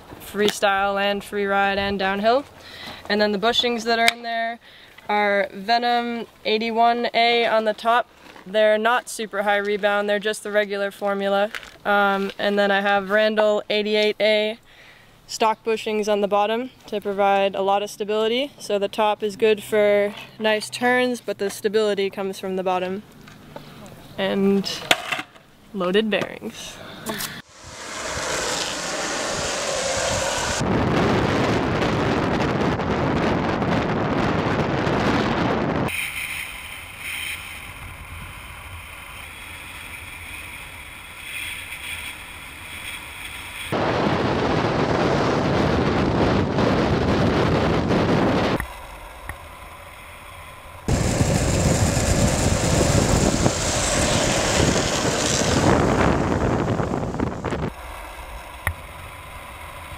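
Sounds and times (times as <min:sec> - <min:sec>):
longboard wheels rolling on asphalt: 0:00.0 - 0:13.4, 0:27.4 - 0:59.9
wind rushing over microphone: 0:27.4 - 0:36.2, 0:43.7 - 0:49.4, 0:50.8 - 0:59.9.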